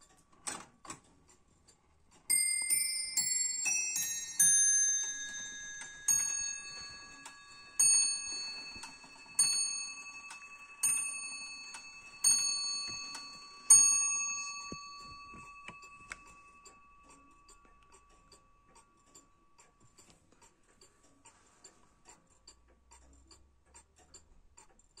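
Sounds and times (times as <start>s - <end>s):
clock ticking: 0.0s - 25.0s
clock bell striking: 2.3s - 17.8s
clock tune: 2.3s - 20.1s.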